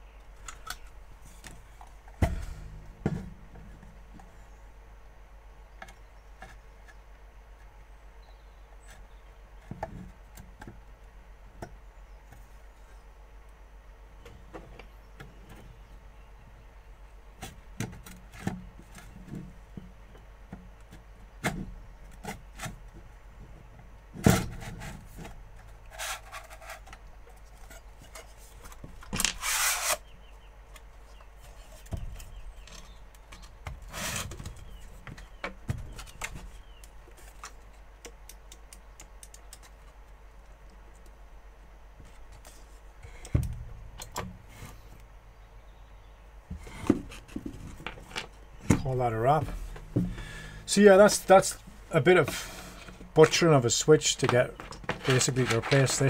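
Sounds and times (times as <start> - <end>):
clicks and knocks of handling: 30.7 - 41.2, 46.5 - 50.2, 54.2 - 56.0.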